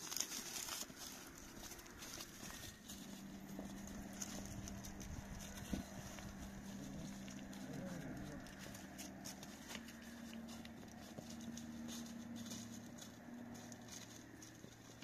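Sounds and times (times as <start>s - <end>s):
footsteps on rock and dry leaves: 0.0s - 15.0s
low hum: 0.1s - 15.0s.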